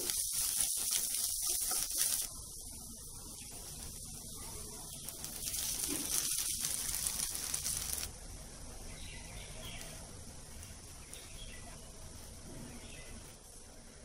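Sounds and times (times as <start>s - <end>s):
pan sizzling: 0.0s - 8.1s
faint hiss: 0.0s - 14.0s.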